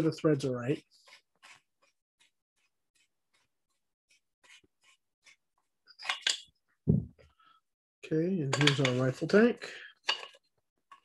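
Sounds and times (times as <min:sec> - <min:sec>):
metal parts scraping and tapping: 0:05.9 - 0:06.5, 0:08.5 - 0:09.2, 0:10.0 - 0:11.0.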